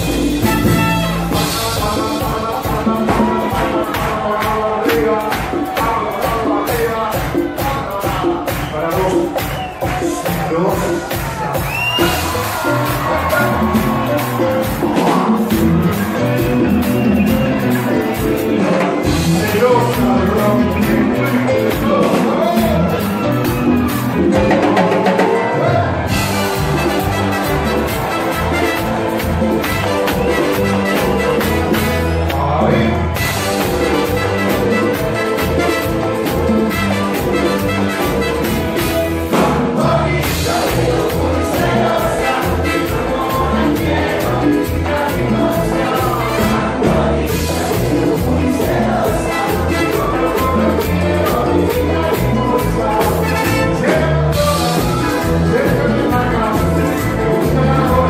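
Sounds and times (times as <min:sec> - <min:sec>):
live cumbia band playing: 0:00.0 - 0:58.0
man singing into a microphone: 0:00.4 - 0:23.3, 0:39.3 - 0:58.0
voices singing: 0:39.3 - 0:58.0.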